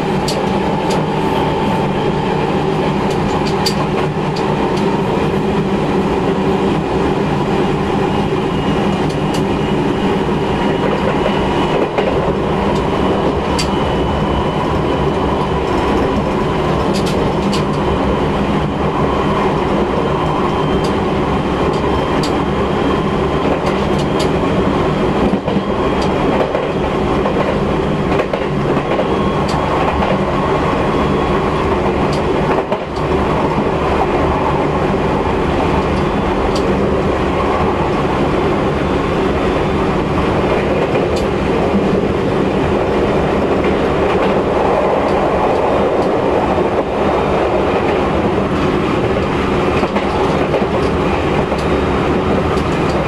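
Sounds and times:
sharp clicks from rails: 0.0 - 5.0, 8.8 - 9.5, 10.8 - 13.8, 14.7 - 17.9, 20.8 - 21.0, 21.6 - 22.5, 23.4 - 24.4, 25.2 - 30.3, 31.7 - 34.8, 35.6 - 38.1, 40.1 - 42.2, 42.8 - 53.0
wheel and track noise: 0.0 - 21.0, 21.6 - 53.0.

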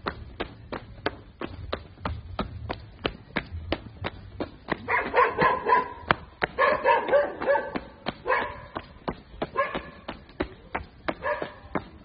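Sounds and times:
footsteps on gravel: 0.0 - 12.0
dog barking: 4.9 - 8.8, 9.5 - 10.0, 11.2 - 11.6.

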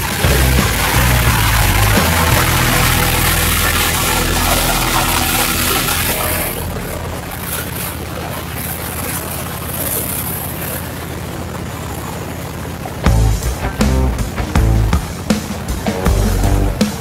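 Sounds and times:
high rushing noise: 0.0 - 9.2, 13.0 - 17.0
motorcycle engine running: 0.0 - 17.0.

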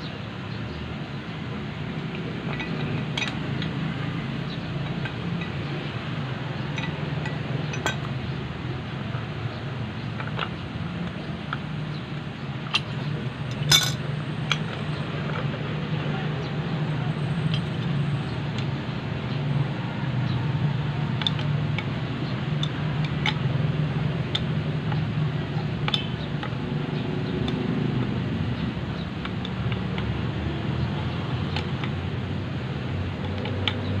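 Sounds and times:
wrenches clinking on metal pipe: 2.1 - 5.8, 6.7 - 8.1, 12.7 - 15.0.

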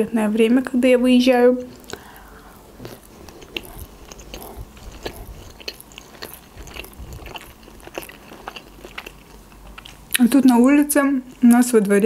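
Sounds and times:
chewing with mouth closed: 1.7 - 10.6.

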